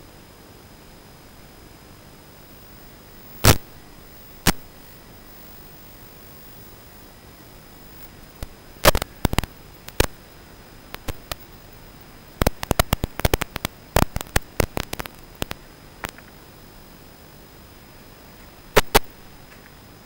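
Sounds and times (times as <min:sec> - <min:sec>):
faint high whine: 0:00.0 - 0:20.0
video feed static hiss: 0:00.0 - 0:20.0
loud crackles and pops: 0:03.2 - 0:05.1, 0:07.8 - 0:16.6, 0:18.7 - 0:19.7.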